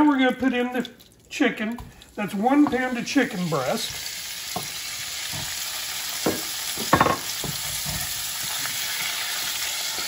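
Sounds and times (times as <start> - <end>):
chicken sizzling in a frying pan: 2.3 - 10.0.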